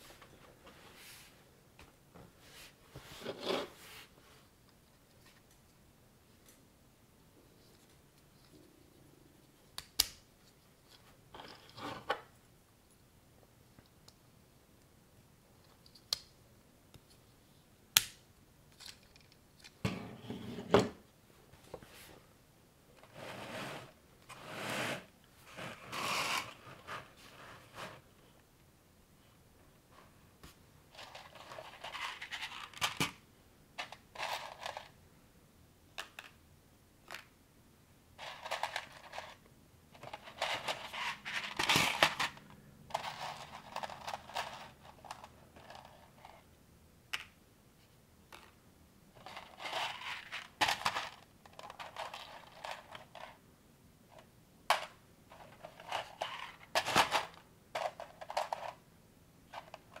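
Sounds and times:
plastic parts rattling and scraping: 0:30.9 - 0:33.2, 0:33.8 - 0:34.9, 0:38.2 - 0:39.4, 0:40.0 - 0:46.4, 0:49.2 - 0:53.4, 0:54.7 - 0:58.8, 0:59.5 - 1:00.0.

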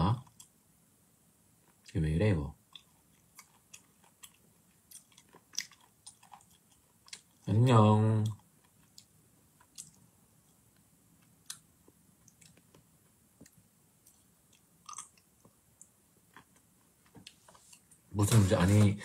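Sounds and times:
mouth noises and soft clicks: 0:08.2 - 0:18.0.

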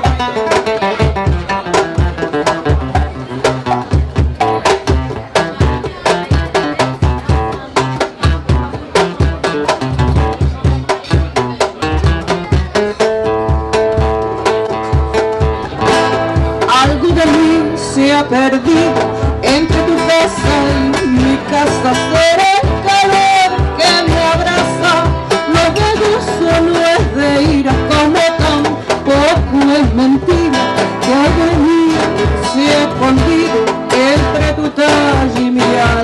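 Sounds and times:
acoustic guitar plucked: 0:00.0 - 0:36.0
woman singing: 0:16.6 - 0:36.0.

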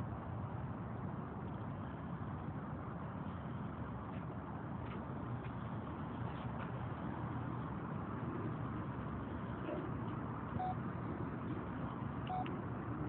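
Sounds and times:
low outdoor rumble: 0:00.0 - 0:13.0
phone key beeps: 0:12.3 - 0:12.5.

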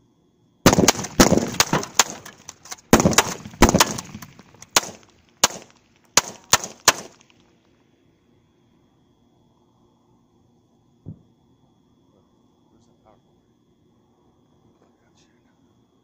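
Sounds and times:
rapid gunshots: 0:00.7 - 0:07.4.

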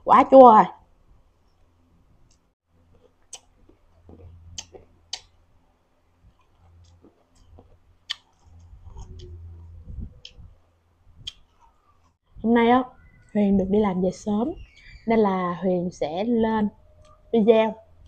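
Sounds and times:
soft chewing: 0:01.5 - 0:10.6, 0:11.2 - 0:12.2
crunchy chewing: 0:02.3 - 0:10.4.

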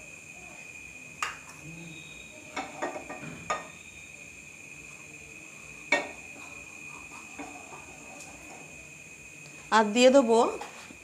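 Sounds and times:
steady high-pitched whine: 0:00.0 - 0:11.0.

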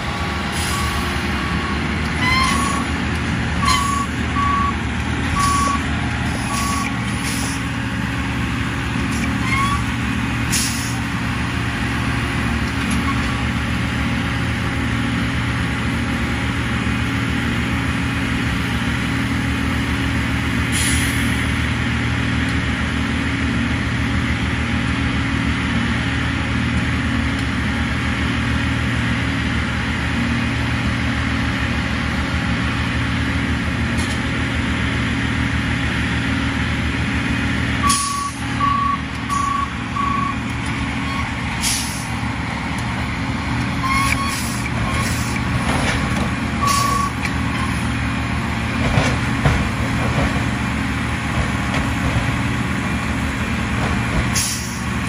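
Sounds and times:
diesel engine idling: 0:00.0 - 0:55.0
high warning beeps: 0:03.6 - 0:04.8, 0:05.4 - 0:05.8, 0:06.5 - 0:06.9, 0:37.8 - 0:40.4, 0:46.6 - 0:47.7.

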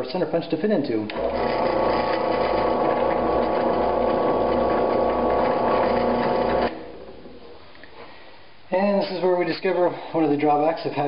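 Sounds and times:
drill press humming: 0:01.1 - 0:07.6.

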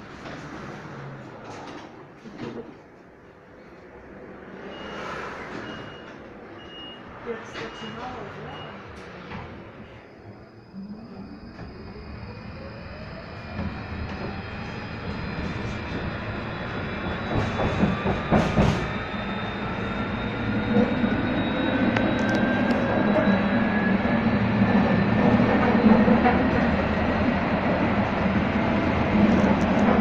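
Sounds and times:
tram motor whine: 0:07.6 - 0:30.0.

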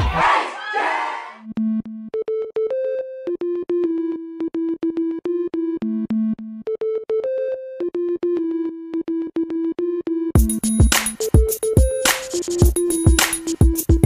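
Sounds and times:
drum beat with deep kicks: 0:10.4 - 0:14.0.

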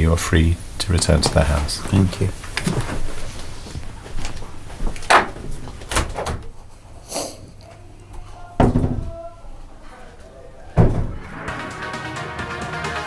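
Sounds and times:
door clicks and knocks: 0:10.8 - 0:11.2
door closing with heavy thump: 0:10.8 - 0:11.3.

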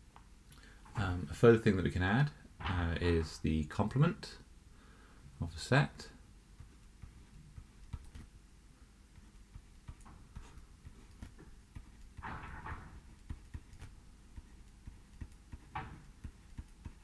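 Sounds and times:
stylus tapping on tablet screen: 0:06.5 - 0:08.3, 0:09.1 - 0:17.0.

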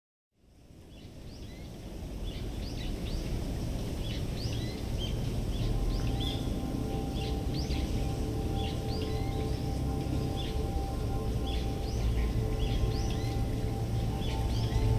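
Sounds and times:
low wind rumble: 0:00.4 - 0:14.9
small birds chirping: 0:00.9 - 0:14.9
faint chime tones: 0:05.6 - 0:14.9.

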